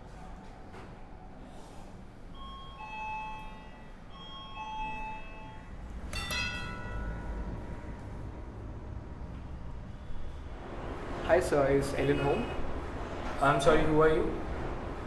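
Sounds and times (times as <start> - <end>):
doorbell ding-dong chime: 2.4 - 7.6
sharp metallic clack: 6.1 - 7.2.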